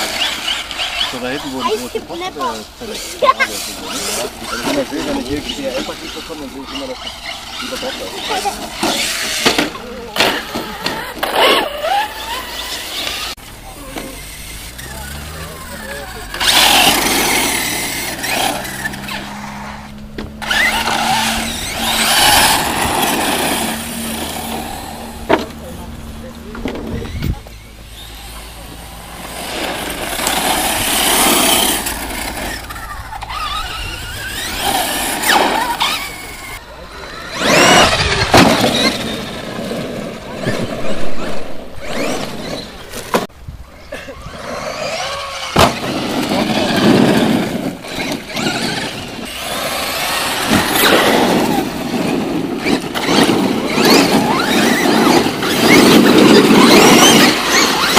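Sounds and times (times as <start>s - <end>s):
rc truck motor whine: 0.0s - 43.3s, 44.3s - 57.9s
tyres scrabbling on dirt: 0.0s - 43.3s, 44.2s - 57.9s.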